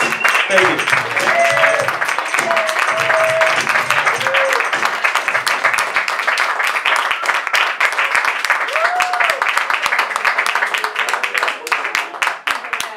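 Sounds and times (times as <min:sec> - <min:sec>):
audience clapping: 0:00.0 - 0:12.9
people whooping: 0:00.6 - 0:04.8, 0:08.0 - 0:09.6.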